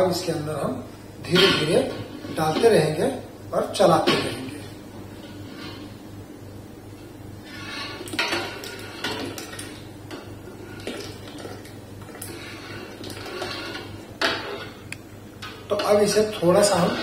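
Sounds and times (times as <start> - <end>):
ladle scraping steel pot: 7.4 - 14.8, 16.6 - 17.0.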